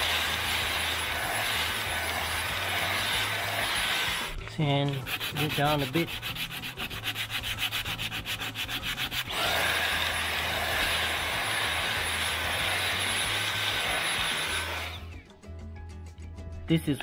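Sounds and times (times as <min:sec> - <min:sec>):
handheld vacuum cleaner whining: 0:00.0 - 0:06.2, 0:08.6 - 0:15.2
sandpaper rubbing on wood: 0:00.0 - 0:15.1.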